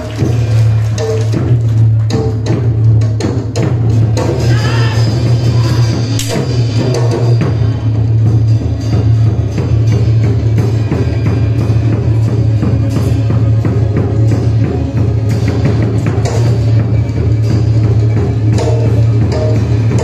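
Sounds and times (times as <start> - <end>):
music with drums and percussion: 0.0 - 20.0.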